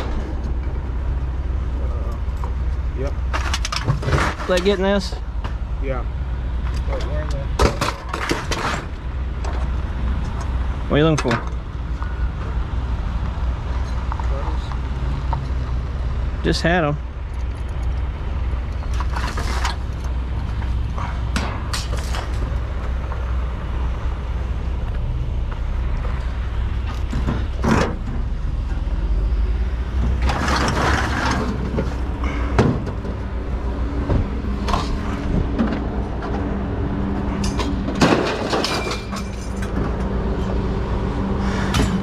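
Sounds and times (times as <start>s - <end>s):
low engine rumble: 0.0s - 42.0s
scrap metal clattering: 3.3s - 4.8s, 30.2s - 33.2s.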